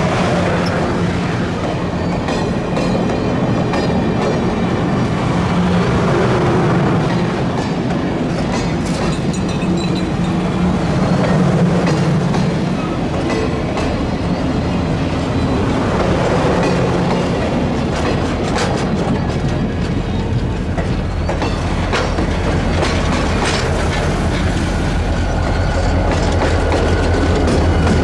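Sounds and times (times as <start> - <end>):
diesel locomotive engine hum: 0.0 - 28.0
train cars rumbling past: 0.0 - 28.0
train wheels clicking over rail joints: 0.3 - 5.7, 6.8 - 28.0.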